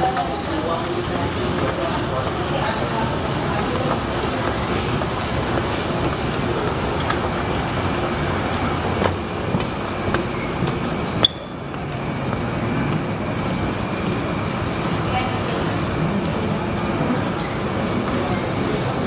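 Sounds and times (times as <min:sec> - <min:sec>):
rumbling background noise: 0:00.0 - 0:19.0.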